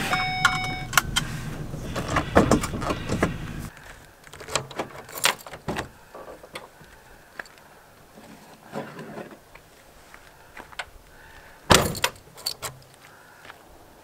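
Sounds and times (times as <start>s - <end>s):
van engine and road rumble: 0.0s - 7.1s.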